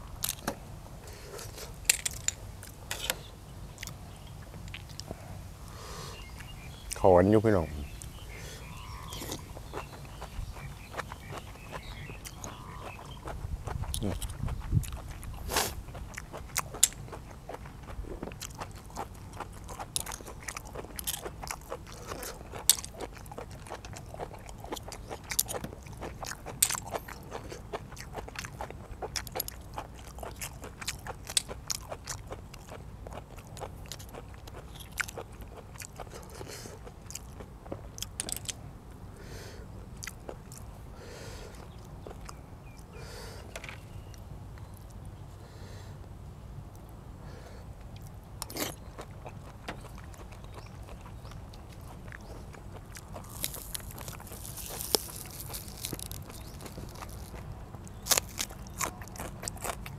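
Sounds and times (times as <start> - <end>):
chewing and biting: 9.0 - 38.6, 39.9 - 40.8, 41.4 - 43.0, 47.8 - 59.9
soft mouth sounds: 11.7 - 17.0.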